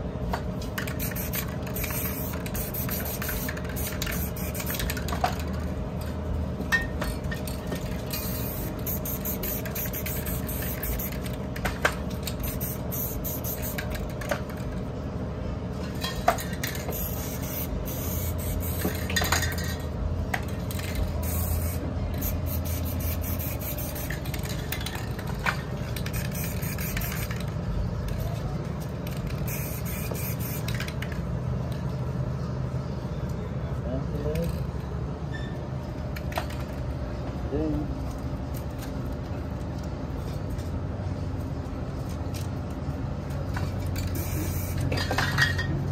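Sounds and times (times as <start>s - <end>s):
spray paint cans hissing: 0.7s - 5.6s, 7.5s - 14.7s, 16.3s - 19.8s, 20.4s - 28.4s, 29.0s - 31.2s, 43.5s - 45.5s
metal cans clinking: 44.9s - 45.8s.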